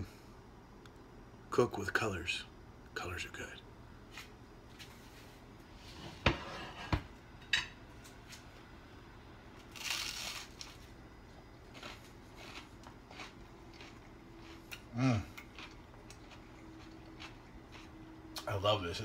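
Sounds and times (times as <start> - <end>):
crunching bite into toast: 9.6 - 10.9, 11.6 - 17.9
quiet chewing: 10.6 - 18.5.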